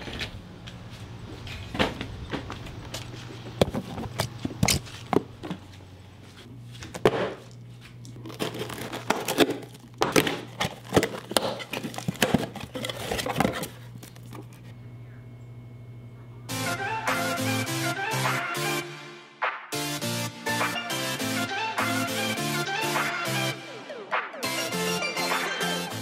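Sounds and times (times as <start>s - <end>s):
steady low hum: 0.0s - 18.1s
handling knocks and clicks: 1.5s - 5.7s
cardboard crinkling: 6.4s - 14.7s
tape tearing: 6.8s - 14.6s.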